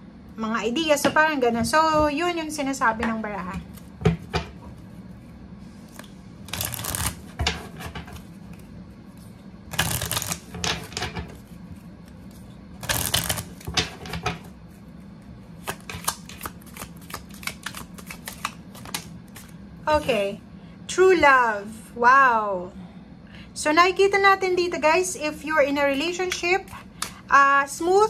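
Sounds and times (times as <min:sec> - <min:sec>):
cards riffle-shuffled: 0:05.9 - 0:07.3, 0:09.2 - 0:10.6, 0:11.4 - 0:13.7, 0:15.6 - 0:19.5.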